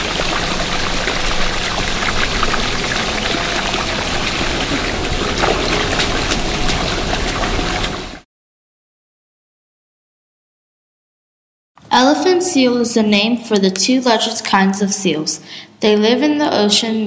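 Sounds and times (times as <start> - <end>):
water splashing in a pool: 0.0 - 8.2.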